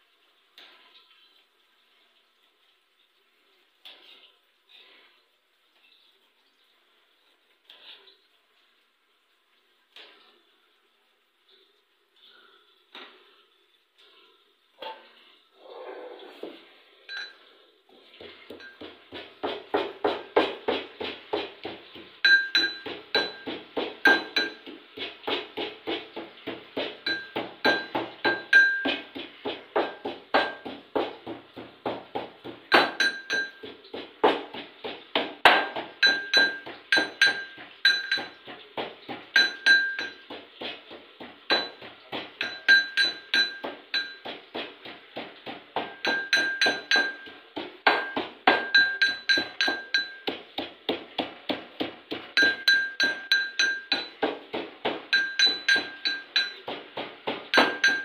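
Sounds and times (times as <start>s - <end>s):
metallic clinks ringing: 17.1s - 17.5s
metal pestle pounding in mortar: 18.2s - 58.0s.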